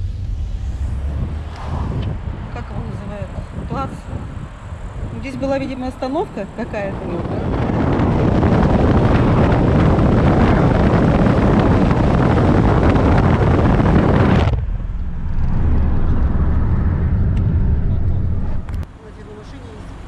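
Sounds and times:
car cabin low rumble: 0.0s - 19.8s
wind and tyre noise: 0.0s - 20.0s.

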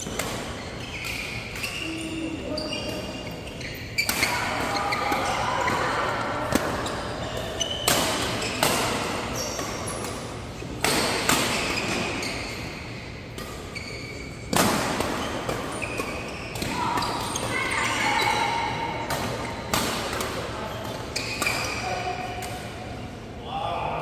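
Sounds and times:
shoes squeaking on court: 0.0s - 5.4s, 6.7s - 18.5s, 20.6s - 21.9s.

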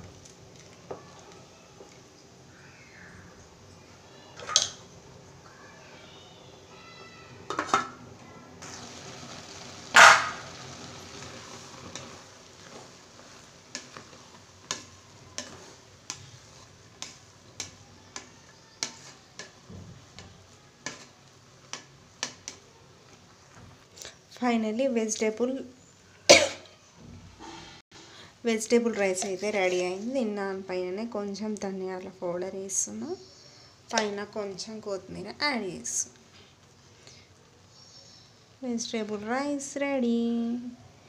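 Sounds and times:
pot and utensils clattering: 7.5s - 8.0s.

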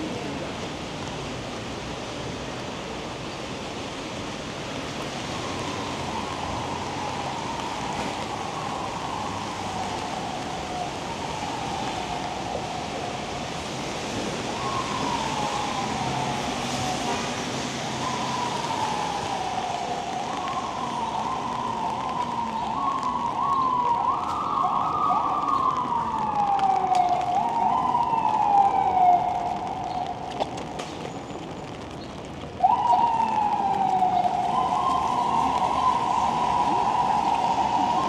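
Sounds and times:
emergency siren wailing: 5.0s - 30.9s, 32.6s - 38.0s
second siren: 5.1s - 13.8s, 14.4s - 30.7s, 32.6s - 38.0s.

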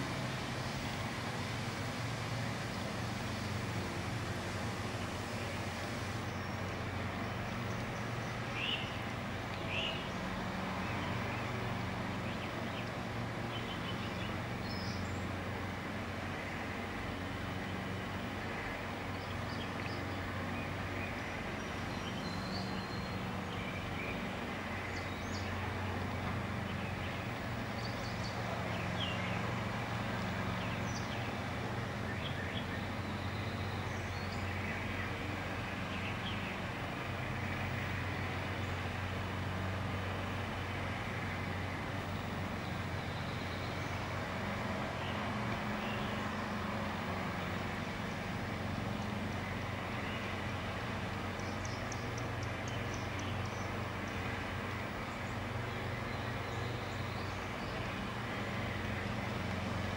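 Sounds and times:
distant traffic rumble: 0.0s - 59.9s.

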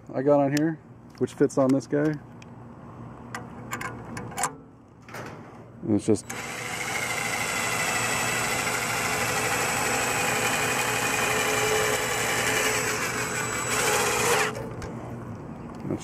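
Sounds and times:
handheld power tool running: 6.3s - 14.8s.

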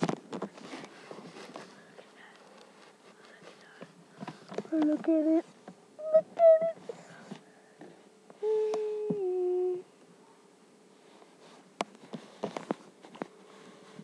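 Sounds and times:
person humming: 4.7s - 7.2s, 8.4s - 9.9s.

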